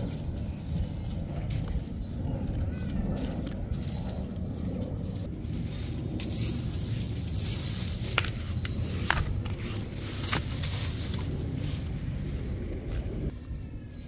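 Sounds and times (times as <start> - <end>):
dry palm frond rustling: 0.0 - 13.4
steady low rumble: 0.0 - 14.0
footsteps on paving: 7.9 - 11.6.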